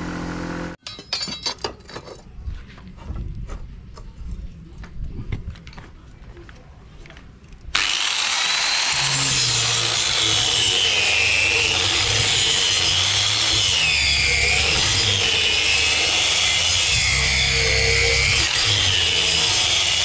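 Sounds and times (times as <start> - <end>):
power grinder cutting steel: 7.7 - 20.0.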